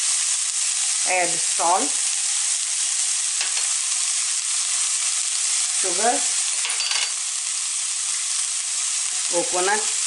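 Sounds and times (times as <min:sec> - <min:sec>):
vegetables sizzling in a skillet: 0:00.0 - 0:10.0.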